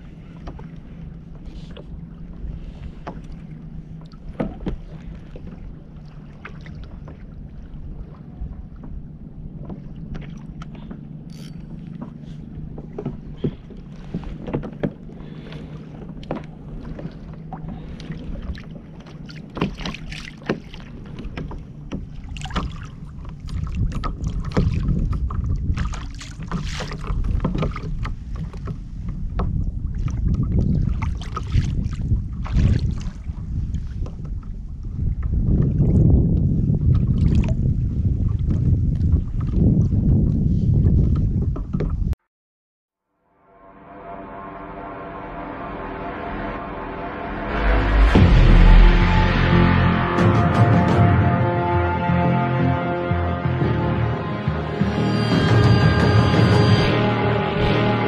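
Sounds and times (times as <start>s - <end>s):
water lapping against kayak hull: 0.0s - 42.2s
wind rumble on microphone: 0.0s - 42.2s, 45.7s - 52.0s
gear knocking on boat: 18.8s - 29.6s.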